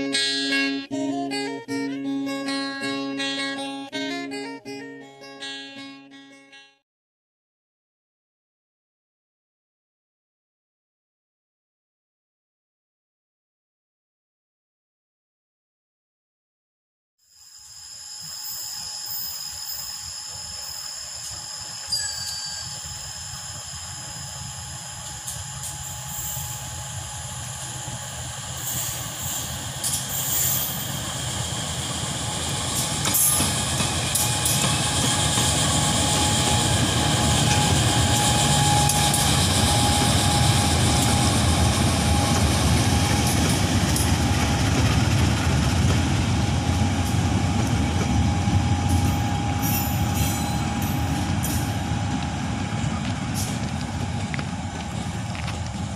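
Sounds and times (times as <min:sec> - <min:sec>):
thin steady whine: 0:17.3 - 0:55.9
wagons rolling on rails: 0:18.2 - 0:55.9
locomotive engine rumble: 0:20.1 - 0:55.9.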